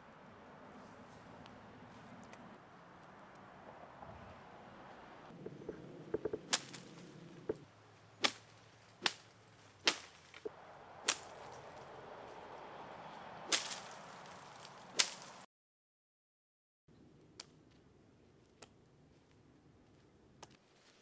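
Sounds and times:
sharp cracks: 6.2 - 7.6, 8.2 - 15.4.

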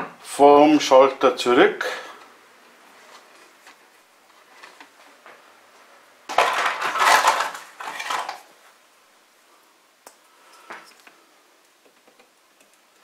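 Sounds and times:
plastic and wire rattling: 6.3 - 8.4.

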